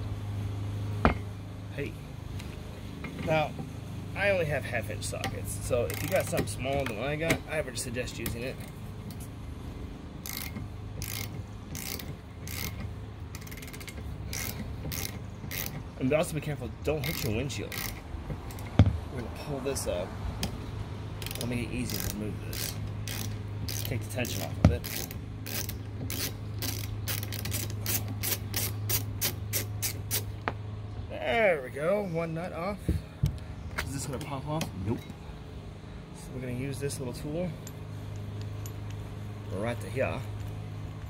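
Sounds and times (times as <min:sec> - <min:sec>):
ratchet clicking: 0:05.2 - 0:07.0, 0:10.2 - 0:15.8, 0:17.0 - 0:18.8, 0:21.2 - 0:30.3.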